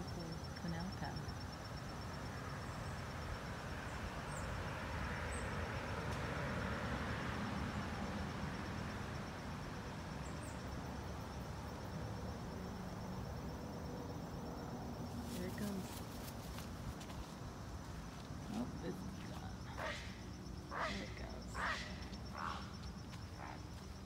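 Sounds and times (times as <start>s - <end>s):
insects trilling: 0.0s - 24.0s.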